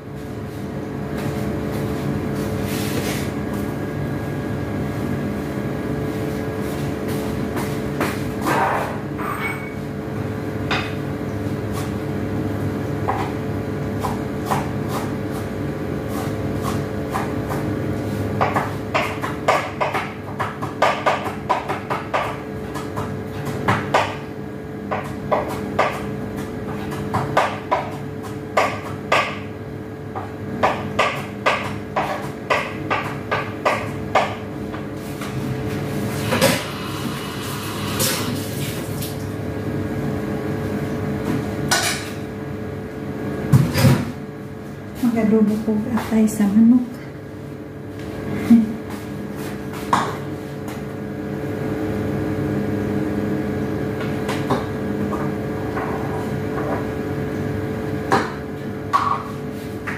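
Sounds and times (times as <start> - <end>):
steady hum: 0.0 - 59.9
dishes and utensils clinking: 8.6 - 9.8.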